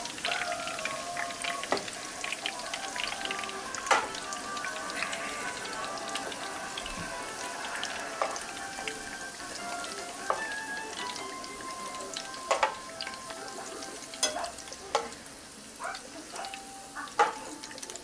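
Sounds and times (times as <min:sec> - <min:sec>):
meatballs sizzling in oil: 0:00.0 - 0:18.0
metal tongs clicking against pan: 0:03.8 - 0:04.2, 0:12.5 - 0:13.2, 0:14.1 - 0:15.2, 0:15.9 - 0:18.0.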